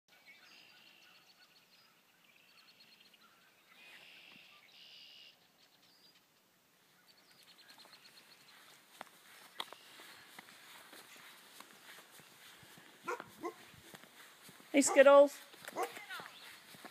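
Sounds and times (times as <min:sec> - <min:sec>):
birds chirping and trilling: 0:00.1 - 0:13.9, 0:15.8 - 0:16.8.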